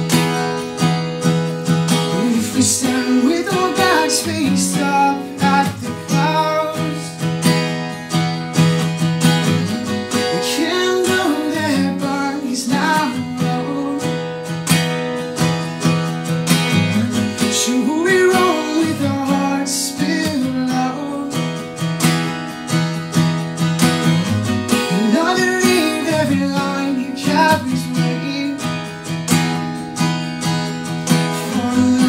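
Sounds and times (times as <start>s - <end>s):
acoustic guitar strumming: 0.0s - 32.0s
man singing: 1.9s - 7.3s, 9.5s - 14.6s, 16.7s - 21.6s, 24.7s - 29.1s, 31.1s - 32.0s.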